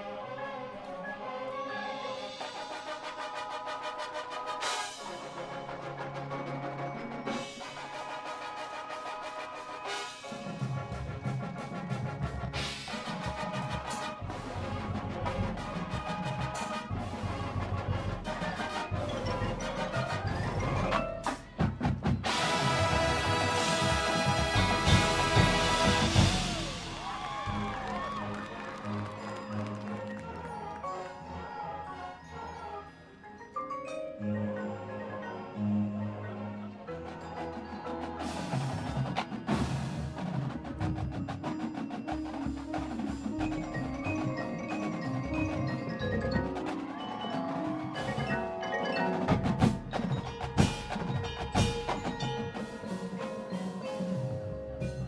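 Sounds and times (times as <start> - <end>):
marching band playing: 1.8 - 32.2, 35.7 - 55.0
drums: 1.9 - 30.6, 37.0 - 55.0
marimba and glockenspiel notes: 4.9 - 55.0
audience whooping and cheering: 25.4 - 31.2, 46.4 - 49.3.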